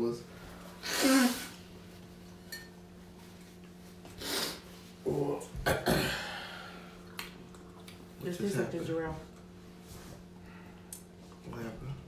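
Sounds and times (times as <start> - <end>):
breathy puff of air: 0.7 - 1.6, 4.2 - 4.7
person burping: 5.6 - 6.4.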